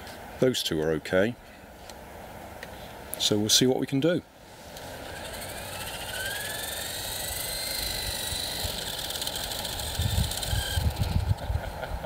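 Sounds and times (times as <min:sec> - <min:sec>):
rc helicopter motors whining: 0:04.6 - 0:11.6.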